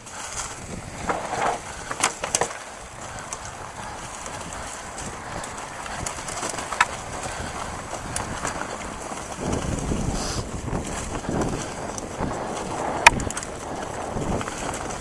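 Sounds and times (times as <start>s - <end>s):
bike tyres crackling through leaves: 0.0s - 15.0s
sticks clicking and knocking: 1.0s - 2.7s, 6.4s - 6.9s.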